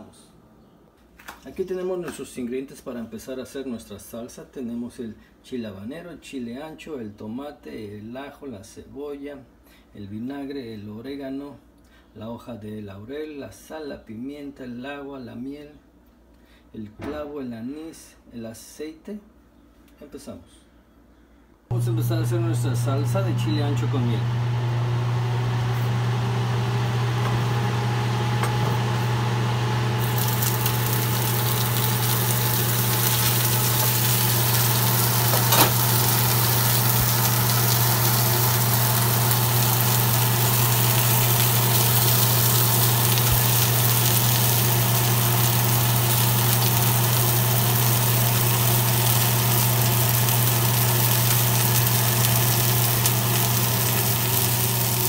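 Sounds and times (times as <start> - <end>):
oil sizzling in a frying pan: 27.8 - 55.0.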